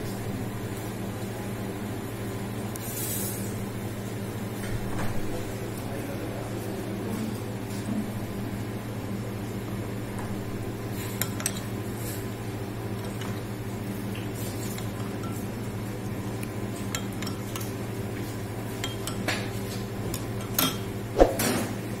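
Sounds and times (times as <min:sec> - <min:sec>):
spoon clinking on ceramic bowl: 0:16.9 - 0:17.7, 0:18.8 - 0:19.3.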